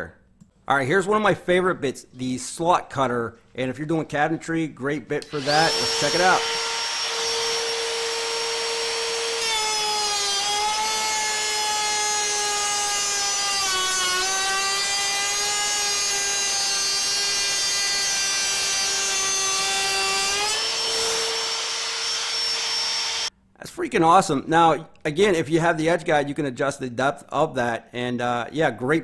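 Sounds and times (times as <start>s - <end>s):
router cutting wood: 5.2s - 23.3s
router whining: 5.2s - 23.3s.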